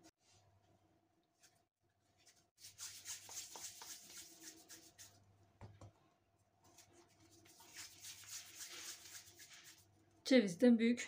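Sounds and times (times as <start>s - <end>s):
hands rolling dough: 2.2s - 10.2s.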